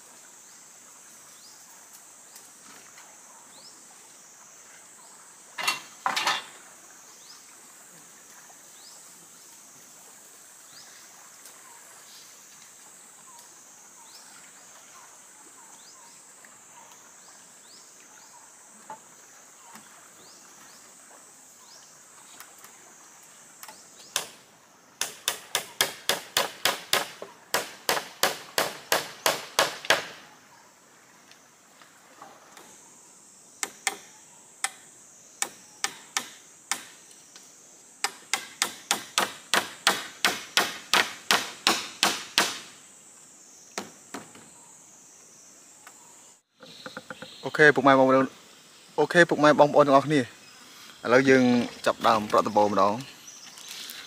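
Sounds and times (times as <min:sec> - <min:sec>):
rapid strikes on wood: 0:25.0 - 0:30.2, 0:38.0 - 0:42.7
sharp knocks: 0:38.0 - 0:42.7.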